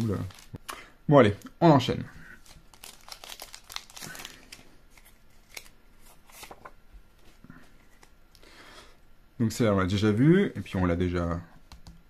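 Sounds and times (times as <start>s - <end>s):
cards rustling: 0.0s - 0.6s, 2.4s - 8.1s
foil pack crinkling and tearing: 0.0s - 0.6s, 2.4s - 5.7s.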